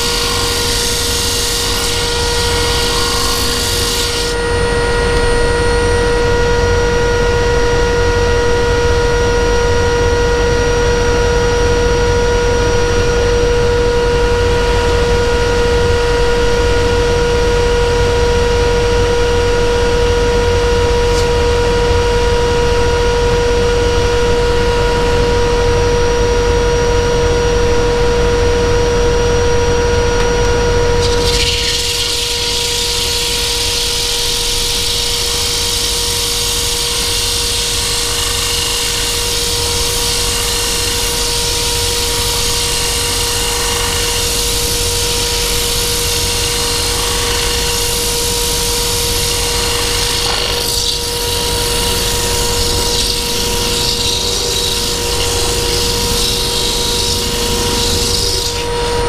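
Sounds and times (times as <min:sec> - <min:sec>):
tool scraping spinning wood: 0:00.0 - 0:06.0, 0:20.8 - 0:22.0, 0:30.5 - 0:59.0
wood lathe motor hum: 0:00.0 - 0:08.6, 0:18.0 - 0:23.8, 0:29.9 - 0:59.0.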